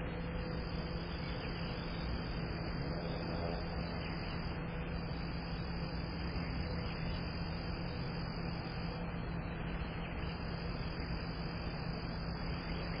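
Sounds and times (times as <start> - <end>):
air conditioner unit humming: 0.0 - 13.0.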